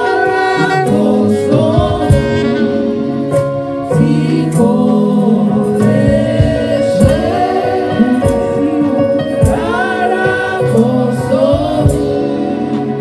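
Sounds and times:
backing singers: 0:00.0 - 0:13.0
band accompaniment: 0:00.0 - 0:13.0
drum hits: 0:01.7 - 0:02.6, 0:05.8 - 0:07.6, 0:09.4 - 0:10.0
woman singing: 0:03.9 - 0:13.0.

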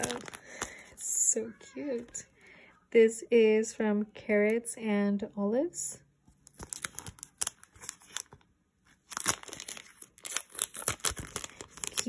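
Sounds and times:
sticker packaging crinkling: 0:00.0 - 0:01.0, 0:06.4 - 0:12.0.

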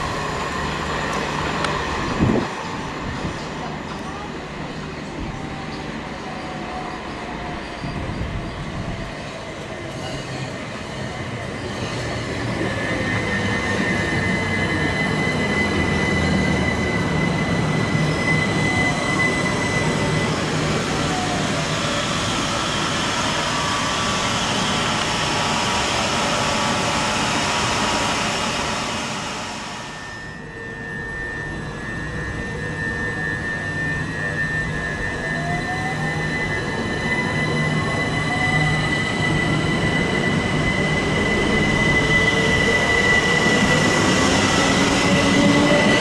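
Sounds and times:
passenger train running: 0:00.0 - 0:46.0
steady high tone: 0:12.6 - 0:46.0.

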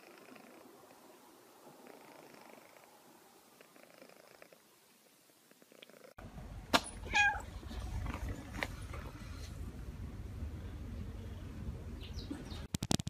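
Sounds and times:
cat purring: 0:00.0 - 0:06.2
outdoor background rumble: 0:06.2 - 0:12.8
cat meow: 0:07.0 - 0:07.5.

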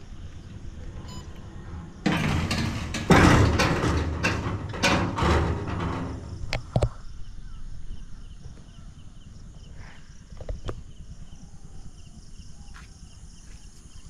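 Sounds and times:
barrier mechanism rattling: 0:00.5 - 0:06.8.

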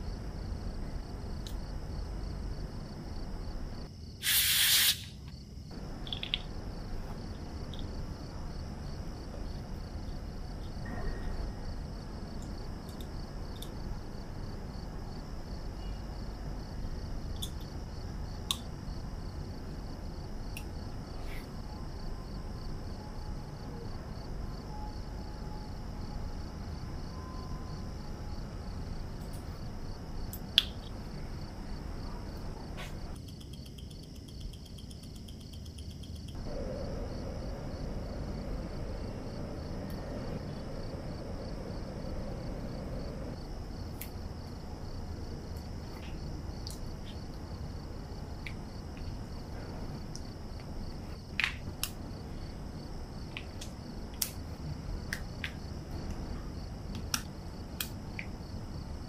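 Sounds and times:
short loud hiss: 0:04.2 - 0:05.2.

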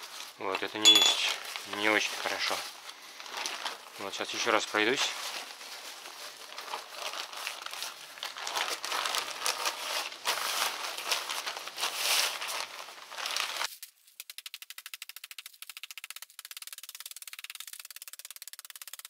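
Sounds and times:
plastic sack crinkling: 0:00.0 - 0:14.2.

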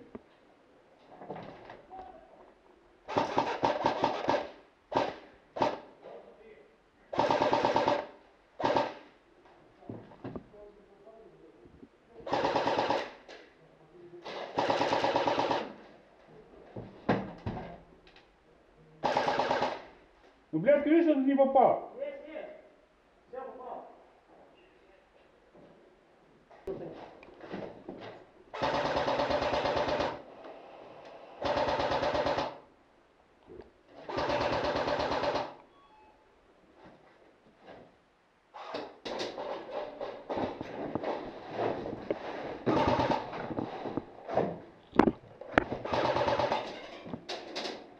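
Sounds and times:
airsoft rifle full-auto burst: 0:03.1 - 0:05.8, 0:07.2 - 0:09.0, 0:12.3 - 0:13.2, 0:14.4 - 0:15.7, 0:19.0 - 0:19.9, 0:28.5 - 0:30.3, 0:31.4 - 0:32.6, 0:34.1 - 0:35.6, 0:42.7 - 0:43.3, 0:45.8 - 0:46.7.

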